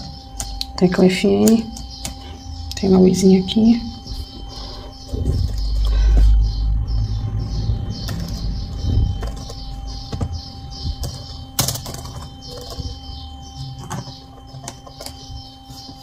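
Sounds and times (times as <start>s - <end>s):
low rumble: 4.9s - 11.0s
laptop keys clicking: 11.0s - 12.9s.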